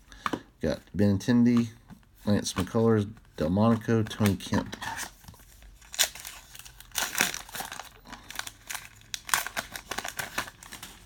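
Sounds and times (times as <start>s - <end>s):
wrapper tearing and crinkling: 4.8s - 11.0s.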